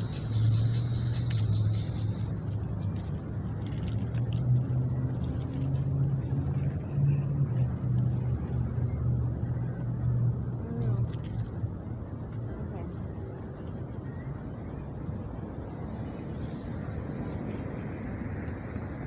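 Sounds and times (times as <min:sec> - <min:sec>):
wavering hum: 0:00.0 - 0:06.9
vehicle engine rumble: 0:00.0 - 0:19.0.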